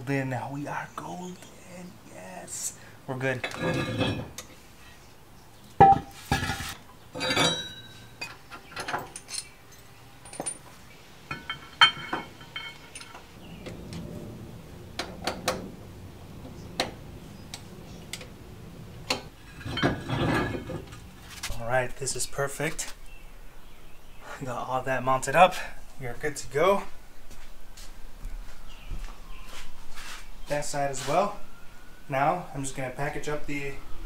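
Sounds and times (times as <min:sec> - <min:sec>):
metal clanks and clinks: 0:03.4 - 0:04.5, 0:05.8 - 0:14.1, 0:19.1 - 0:21.4.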